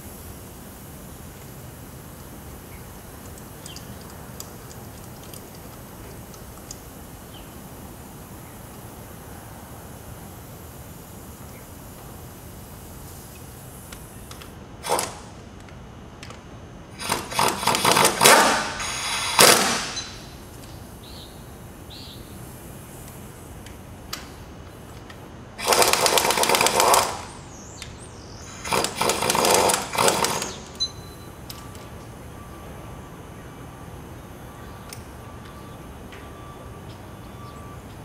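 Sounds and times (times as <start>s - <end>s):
impact driver hammering bursts: 14.8s - 15.3s, 17.0s - 20.2s, 25.6s - 27.4s, 28.5s - 30.8s.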